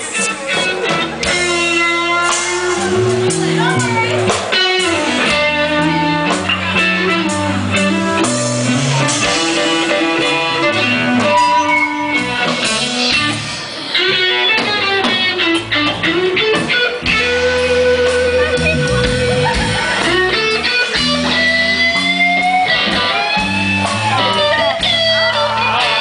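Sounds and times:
bass guitar: 0:00.0 - 0:26.0
drums: 0:00.0 - 0:26.0
electric guitar: 0:00.0 - 0:26.0.

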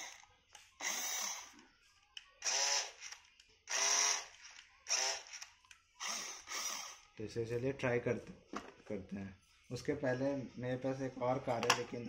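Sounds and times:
toy car electric motor whirring: 0:00.0 - 0:01.6, 0:02.4 - 0:07.2.

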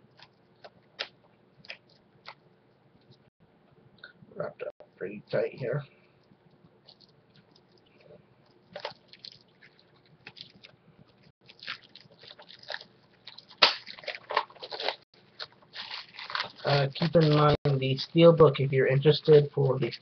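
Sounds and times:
plastic wrap crinkling: 0:08.7 - 0:17.6.

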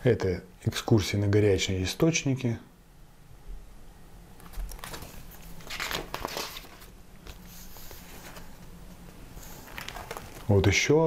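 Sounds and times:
glossy paper pages rustling: 0:04.4 - 0:10.8.

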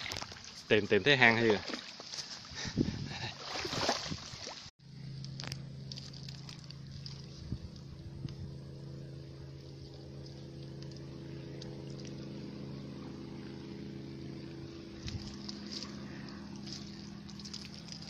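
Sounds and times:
engine running: 0:04.8 - 0:18.0.

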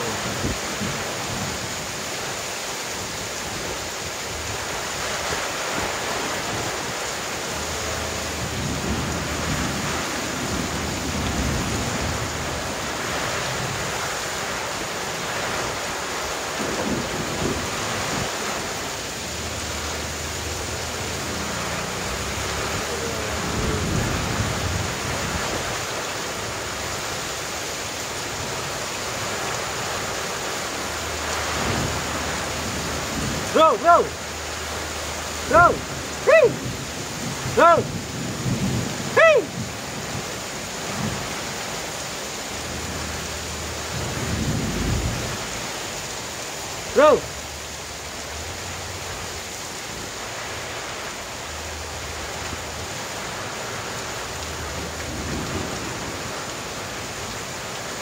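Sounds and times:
heavy rain pouring: 0:00.0 - 0:58.0
low rumbling: 0:16.5 - 0:25.8.

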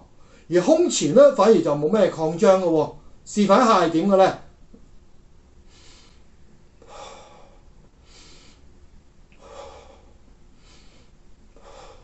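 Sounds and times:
man breathing through mouth: 0:05.6 - 0:08.7, 0:09.4 - 0:12.0.

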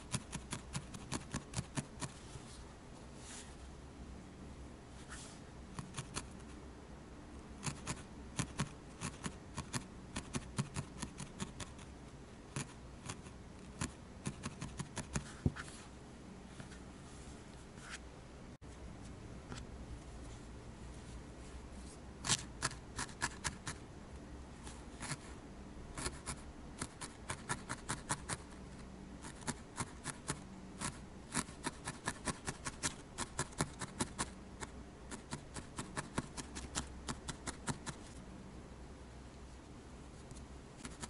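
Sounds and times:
felting needle jabbing wool: 0:00.0 - 0:02.2, 0:05.7 - 0:06.6, 0:07.6 - 0:15.6, 0:22.2 - 0:23.8, 0:25.9 - 0:28.6, 0:29.2 - 0:38.2, 0:40.3 - 0:41.0.

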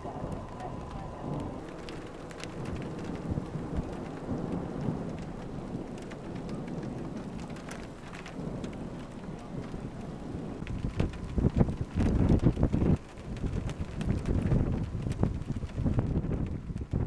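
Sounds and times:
low thunder rumble: 0:00.0 - 0:17.0
rain hissing: 0:00.0 - 0:17.0
sharp raindrop hits: 0:00.0 - 0:17.0.

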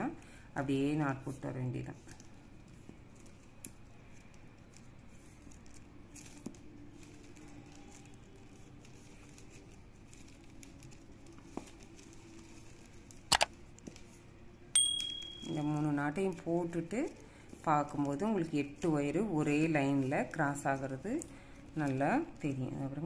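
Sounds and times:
plastic wire rustling and clicking: 0:01.8 - 0:14.4.

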